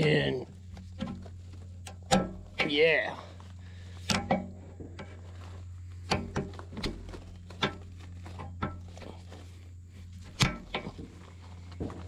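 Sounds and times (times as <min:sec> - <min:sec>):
steady low hum: 0:00.0 - 0:12.0
metal couplers clicking: 0:01.8 - 0:02.8, 0:04.0 - 0:05.1.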